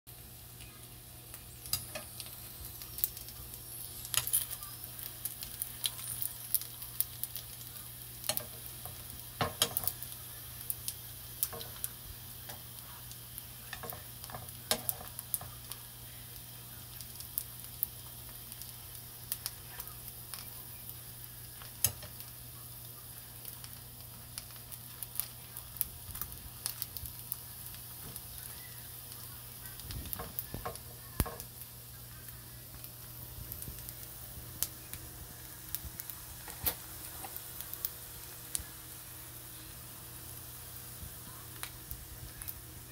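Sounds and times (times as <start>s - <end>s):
dumplings sizzling in oil: 0.1s - 42.9s
metal tongs clicking on pan: 1.6s - 2.3s, 8.2s - 10.0s, 13.7s - 15.5s, 21.8s - 22.2s.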